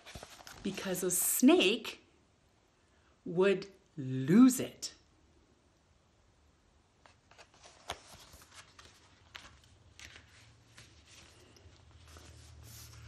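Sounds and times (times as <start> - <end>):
paper pages rustling: 0.0 - 1.2, 7.0 - 13.0.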